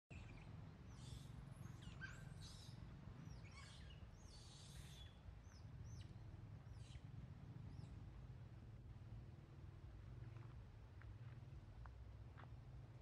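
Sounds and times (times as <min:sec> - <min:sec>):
birds chirping: 0:00.1 - 0:08.1.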